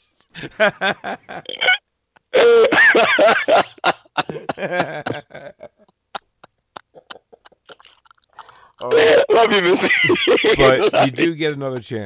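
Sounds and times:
people laughing: 0.4s - 1.6s, 2.8s - 7.7s, 8.9s - 12.0s.

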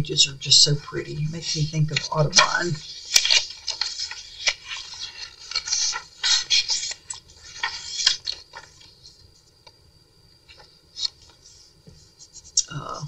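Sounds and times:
paper pages turning: 1.2s - 9.2s, 10.5s - 11.6s.

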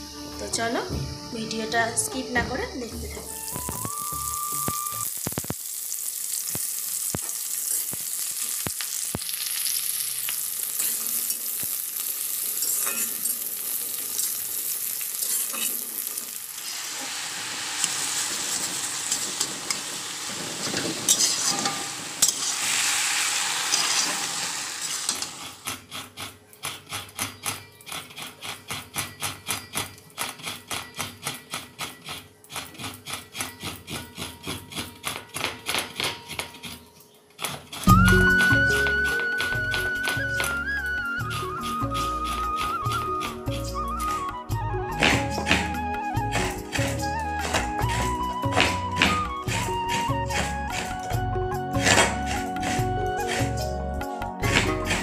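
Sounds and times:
onions sizzling in oil: 0.0s - 25.6s
spatula scraping pan: 15.1s - 15.9s, 20.6s - 22.6s, 25.1s - 44.2s, 45.0s - 53.8s, 54.4s - 55.0s
coconut being scraped on grater: 25.4s - 44.2s, 45.0s - 55.0s.

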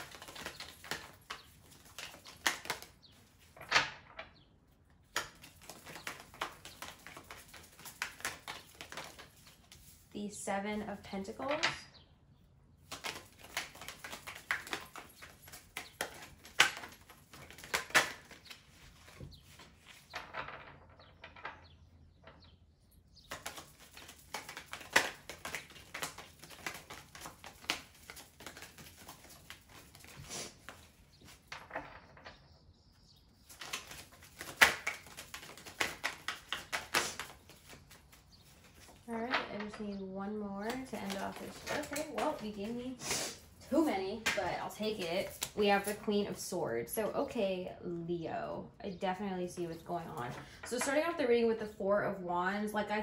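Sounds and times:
cards being shuffled: 0.0s - 3.7s, 5.0s - 10.1s, 12.8s - 20.6s, 23.3s - 32.2s, 33.4s - 39.8s, 40.6s - 46.0s.

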